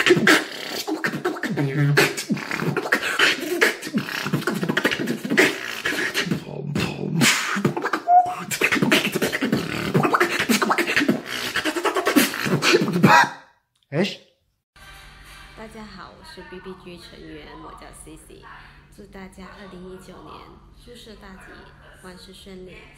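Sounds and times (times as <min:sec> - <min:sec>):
man beatboxing: 0:00.0 - 0:13.3.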